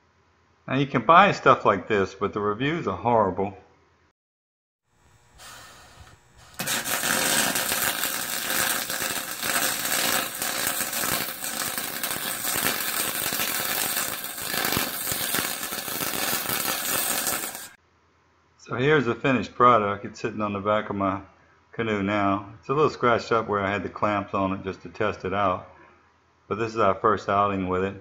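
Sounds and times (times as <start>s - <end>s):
welding arc crackling and sizzling: 5.0s - 17.8s.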